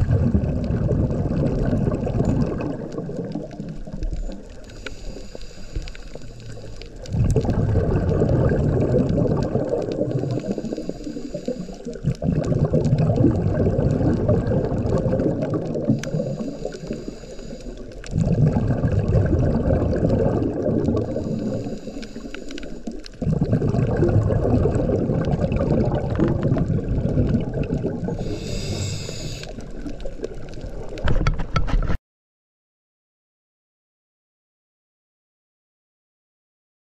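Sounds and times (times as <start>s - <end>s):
exhaled air bubbling underwater: 0.0s - 31.4s
regulator inhale hiss: 4.3s - 7.1s, 10.1s - 12.0s, 16.0s - 18.1s, 21.0s - 23.2s, 28.1s - 30.0s.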